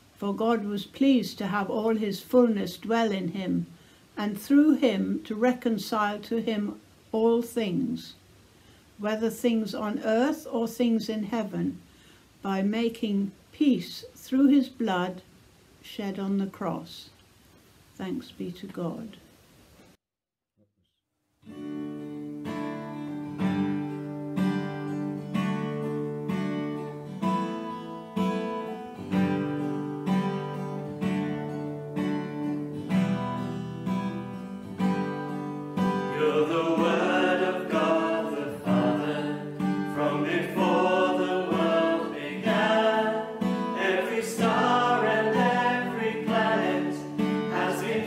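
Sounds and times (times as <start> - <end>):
acoustic guitar strumming: 21.4 - 48.0
voices singing: 36.0 - 48.0.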